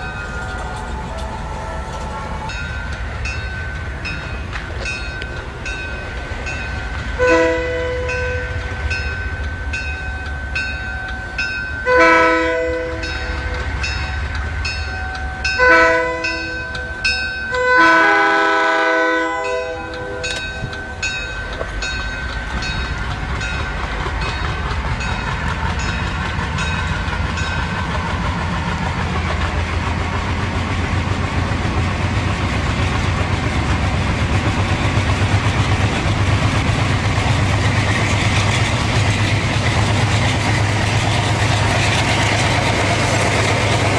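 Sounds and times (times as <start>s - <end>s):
diesel locomotive engine: 0.0s - 43.9s
locomotive air horn blasts: 0.1s - 2.8s, 7.2s - 8.7s, 11.8s - 13.6s, 15.5s - 20.7s
bell dinging: 8.1s - 12.0s, 19.4s - 27.7s.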